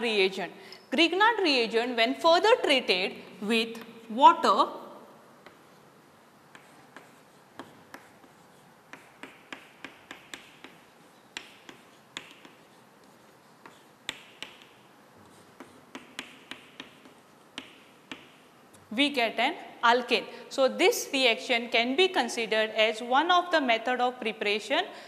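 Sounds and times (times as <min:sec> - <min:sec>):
chalk scratching strokes: 0:05.4 - 0:18.6
chalk tapping on blackboard: 0:05.4 - 0:18.6.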